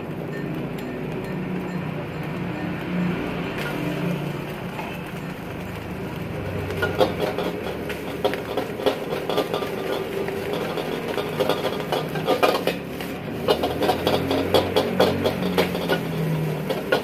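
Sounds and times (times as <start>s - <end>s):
ladle scraping a steel wok: 6.6s - 17.0s.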